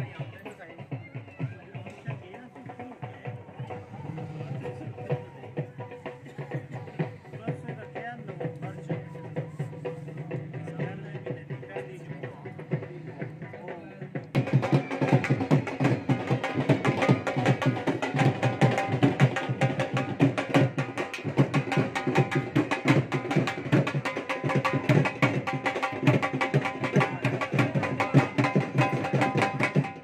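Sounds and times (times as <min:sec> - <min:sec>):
dhol drum beating fast rhythm: 0:00.0 - 0:30.0.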